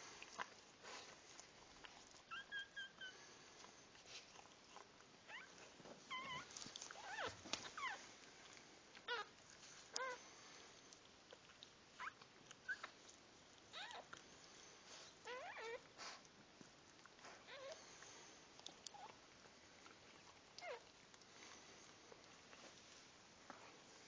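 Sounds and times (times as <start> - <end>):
puppies squeaking faintly: 2.2 - 3.3, 4.3 - 8.2, 9.0 - 10.2, 11.3 - 13.0, 13.7 - 14.2, 14.9 - 16.2, 17.1 - 18.0, 18.6 - 19.2, 20.2 - 21.0.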